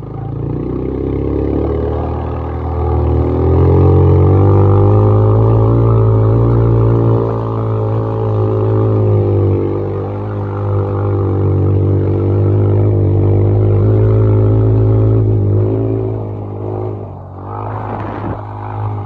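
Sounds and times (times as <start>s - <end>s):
quad bike engine under throttle: 0.0s - 19.0s.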